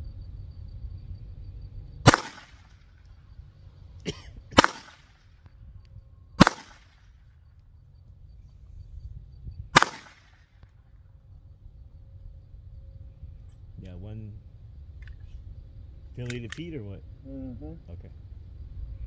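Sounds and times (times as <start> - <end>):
gunshots with short echo: 2.0 - 2.8, 4.5 - 5.3, 6.4 - 7.0, 9.7 - 10.5
faint firearm click: 16.2 - 16.7.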